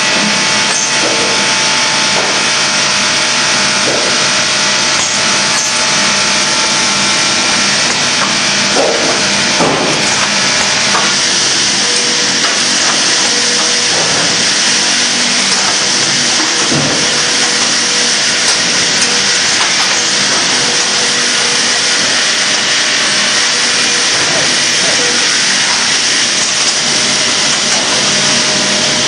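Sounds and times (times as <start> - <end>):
sawmill machinery hissing: 0.0 - 29.0.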